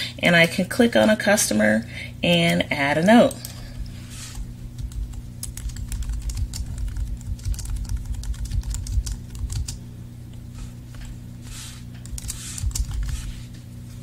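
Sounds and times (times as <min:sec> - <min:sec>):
faint steady hum: 0:00.0 - 0:14.0
typing on computer keyboard: 0:04.8 - 0:09.8, 0:12.0 - 0:13.2.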